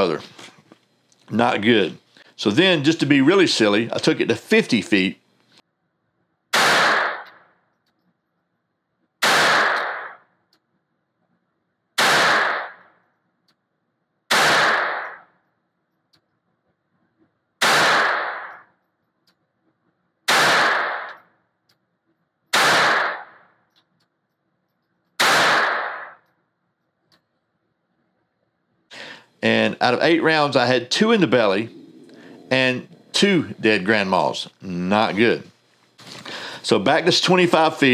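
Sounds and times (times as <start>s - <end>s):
gunshot echo indoors: 6.5s - 7.4s, 9.2s - 10.3s, 12.0s - 12.9s, 14.3s - 15.3s, 17.6s - 18.7s, 20.3s - 21.2s, 25.2s - 26.2s
pistol shots: 6.5s - 7.5s, 9.2s - 10.3s, 12.0s - 12.9s, 14.3s - 15.3s, 17.6s - 18.7s, 20.3s - 21.3s, 22.5s - 23.5s, 25.2s - 26.2s.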